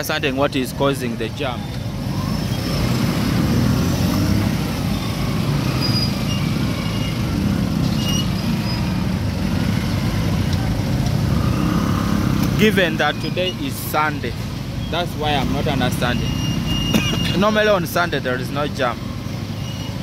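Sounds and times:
motorcycle engines rumbling: 0.0s - 20.0s
short high beeps: 16.2s - 17.4s.

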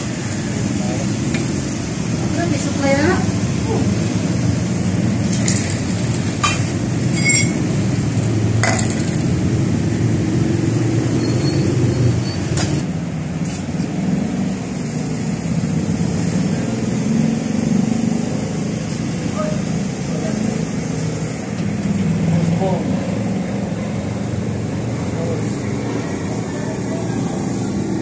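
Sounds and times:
crane engine running: 0.0s - 16.7s, 17.3s - 28.0s
metallic clinks and knocks: 6.4s - 7.7s.

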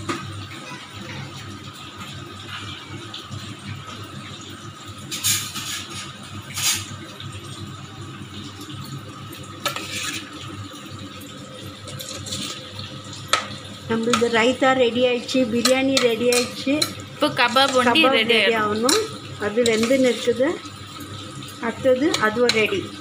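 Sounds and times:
metal spoon scraping steel bowl: 9.7s - 10.3s.

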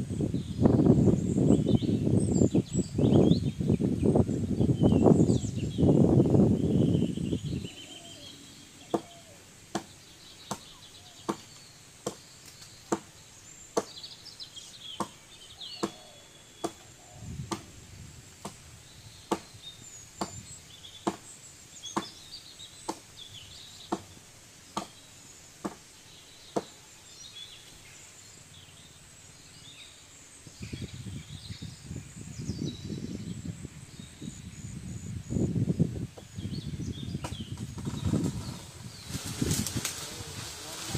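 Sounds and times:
birds chirping: 0.0s - 40.9s
rustle of leaves and branches: 0.0s - 40.9s
blade chopping wood: 15.8s - 16.0s.

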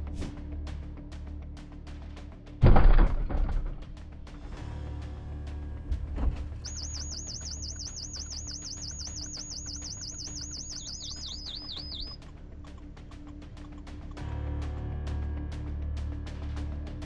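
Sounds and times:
background music with steady beat: 0.0s - 17.0s
high electronic warbling tone: 6.7s - 12.2s.

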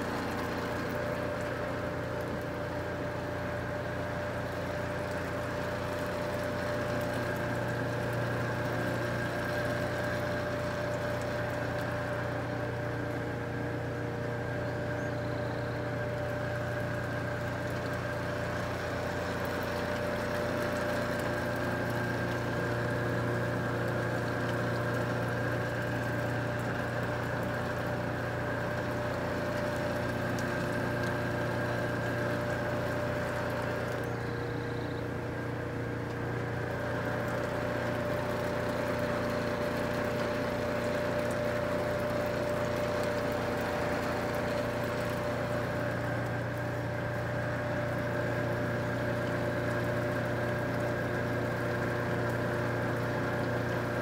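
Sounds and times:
water pump engine hum: 0.0s - 54.0s.

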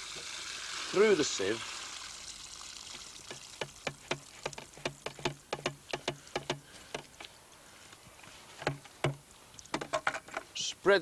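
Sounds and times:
water dripping into tray: 0.1s - 7.3s.

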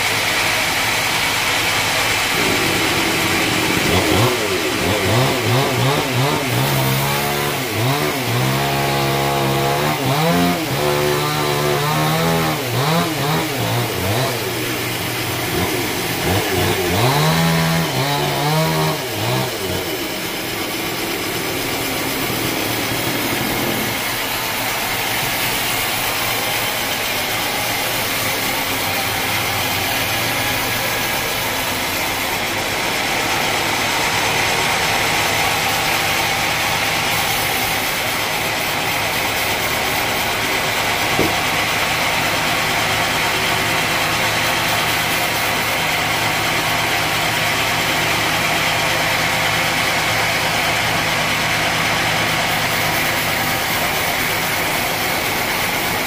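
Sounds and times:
sawmill engine drone: 0.0s - 56.0s
saw blade hissing in wood: 2.3s - 32.2s.

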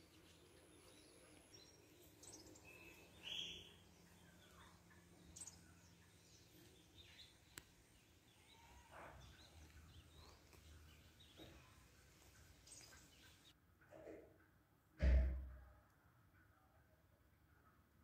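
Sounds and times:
distant bird chirps: 0.0s - 13.6s.

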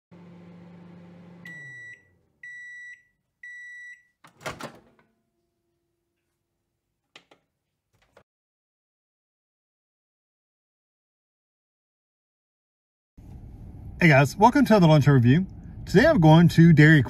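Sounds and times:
microwave oven humming: 0.1s - 5.3s
microwave beeps: 0.7s - 4.6s.

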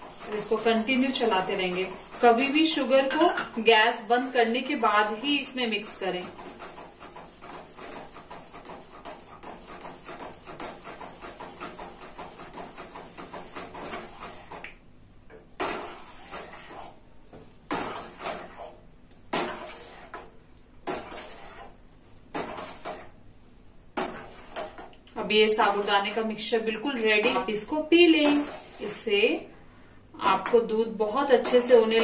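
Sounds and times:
metal spoon scraping a steel pan: 27.2s - 29.0s.

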